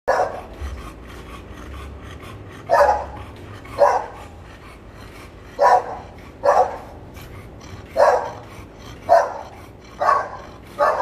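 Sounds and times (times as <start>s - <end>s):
dog barking: 0.1s - 0.5s, 2.7s - 4.3s, 5.5s - 7.0s, 7.9s - 11.0s
dog panting: 0.1s - 11.0s.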